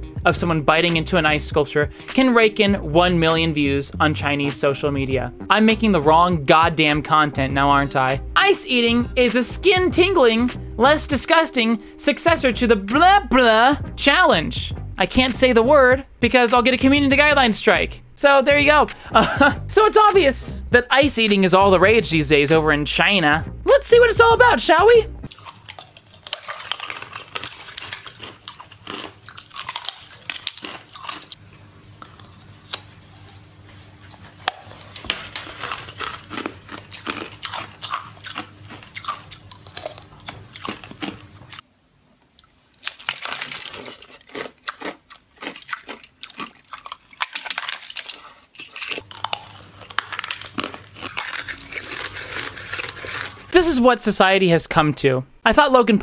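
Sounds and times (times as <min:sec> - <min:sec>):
ice crunching: 0:25.3 - 0:31.4, 0:34.7 - 0:40.0, 0:42.8 - 0:53.9
chewing: 0:25.3 - 0:41.6, 0:42.4 - 0:53.5.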